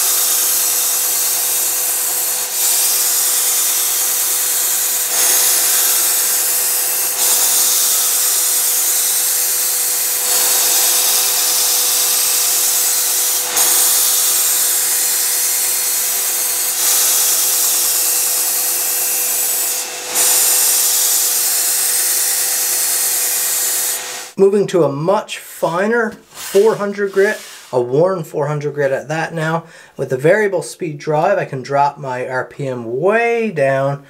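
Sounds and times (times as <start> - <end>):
belt grinder grinding steel: 0.0 - 24.4, 26.3 - 27.8
grinder motor whine: 0.0 - 24.4.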